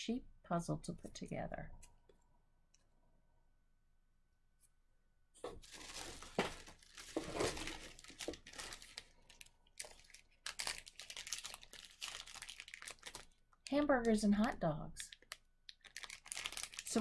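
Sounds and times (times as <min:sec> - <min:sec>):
plastic packaging crinkling: 0:05.5 - 0:17.0.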